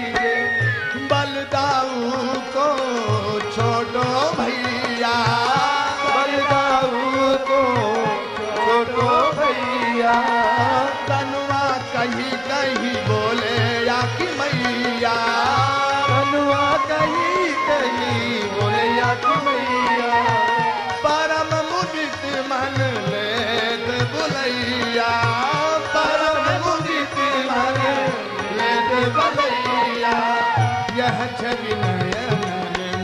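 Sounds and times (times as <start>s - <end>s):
tabla beat: 0.0s - 33.0s.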